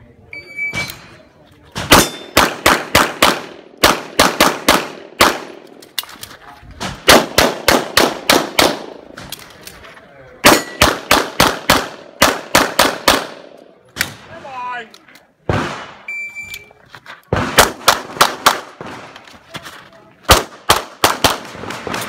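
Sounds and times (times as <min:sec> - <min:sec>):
handgun shots echoing: 0:01.8 - 0:06.0, 0:06.9 - 0:09.5, 0:10.4 - 0:14.3.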